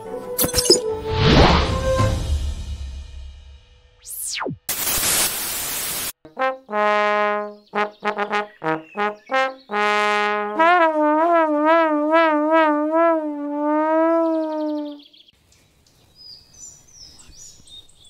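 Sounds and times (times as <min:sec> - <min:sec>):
burst of hiss: 0:04.7 - 0:06.2
trombone playing a tune: 0:06.3 - 0:15.0.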